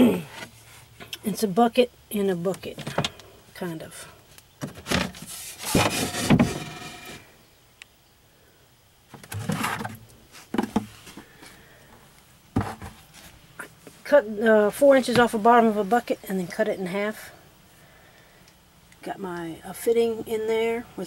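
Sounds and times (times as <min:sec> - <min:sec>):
plastic buckets scraping: 0:04.6 - 0:07.3, 0:09.1 - 0:11.3, 0:12.5 - 0:13.4.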